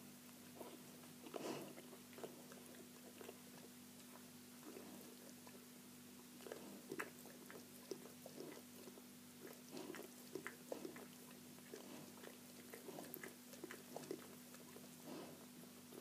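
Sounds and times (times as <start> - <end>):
low steady hum: 0.0 - 16.0
puppies wet smacking: 6.4 - 15.2.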